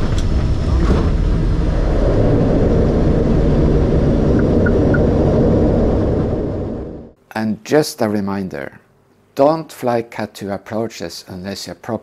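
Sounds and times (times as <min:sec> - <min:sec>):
turboprop engines rumbling: 0:00.0 - 0:07.2.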